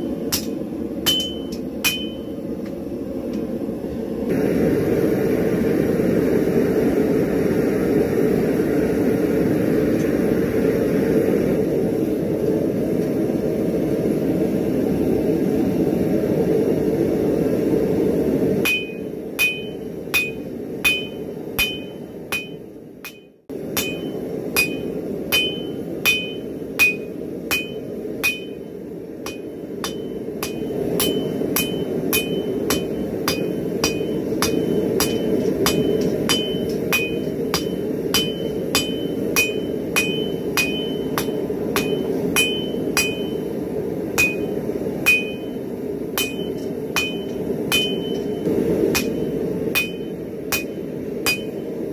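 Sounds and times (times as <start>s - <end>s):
hammer striking steel on anvil: 0.0s - 2.4s, 18.6s - 43.6s, 44.2s - 51.8s
anvil ringing: 0.3s - 2.4s, 18.7s - 28.6s, 29.3s - 43.5s, 44.2s - 45.6s, 46.2s - 51.6s.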